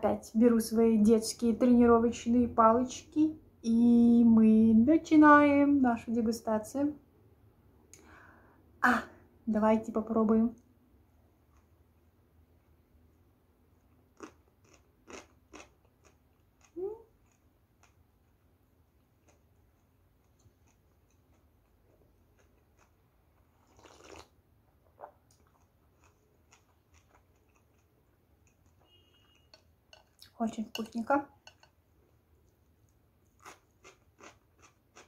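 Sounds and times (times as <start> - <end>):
quiet chewing: 11.2 - 12.1, 13.7 - 35.0.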